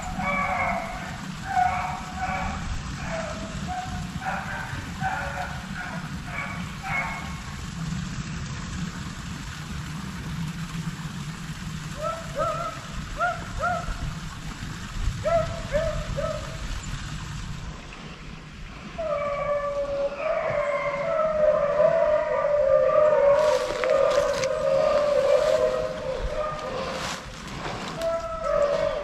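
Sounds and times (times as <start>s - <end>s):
distant dogs baying: 0.0s - 7.5s, 11.9s - 14.0s, 15.2s - 16.6s, 19.0s - 29.0s
wind rumble on microphone: 0.0s - 29.0s.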